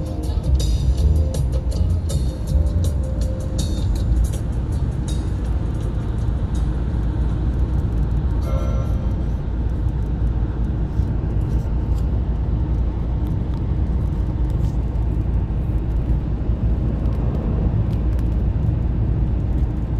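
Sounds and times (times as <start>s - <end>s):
car cabin tyre and engine noise: 0.0s - 19.9s.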